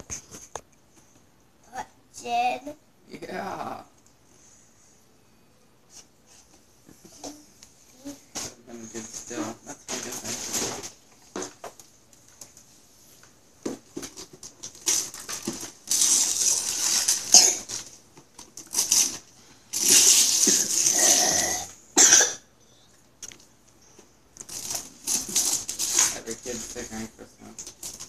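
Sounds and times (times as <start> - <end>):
wrapping paper rustling: 14.0 - 21.1, 24.4 - 28.0
paper ripping: 14.2 - 17.9, 18.6 - 21.4, 24.5 - 26.8.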